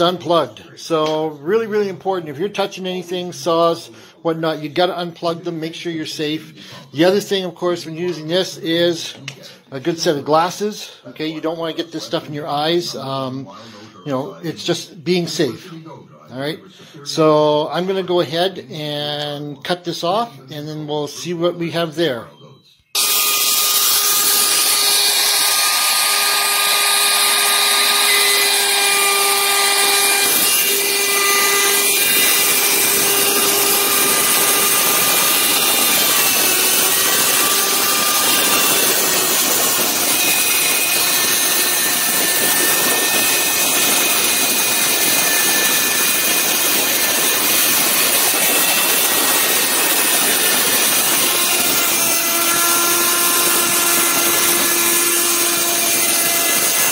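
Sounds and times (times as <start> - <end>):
router motor whine cutting: 23.0 - 56.9.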